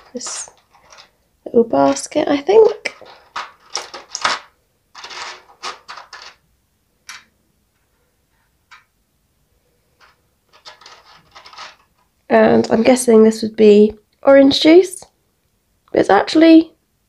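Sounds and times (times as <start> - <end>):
plastic clicks and rustling: 0.0 - 6.4, 8.6 - 8.9, 9.9 - 12.2.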